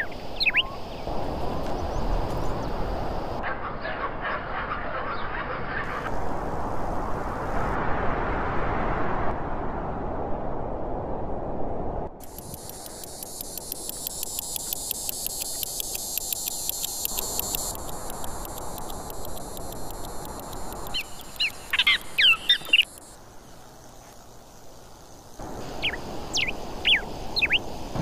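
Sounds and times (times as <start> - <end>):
birds calling: 0.0 - 1.1, 12.3 - 23.0, 25.7 - 28.0
insect chirping: 0.0 - 3.4, 12.2 - 28.0.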